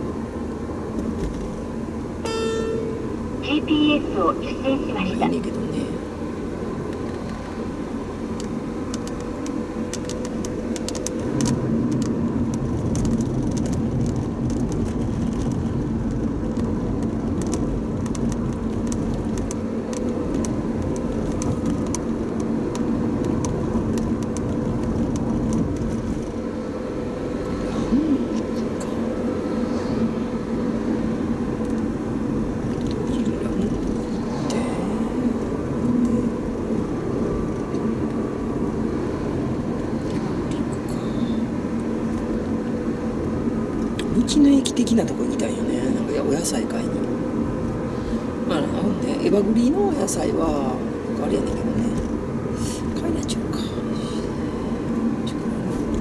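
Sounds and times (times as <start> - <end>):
car engine and tyre hum: 0.0 - 56.0.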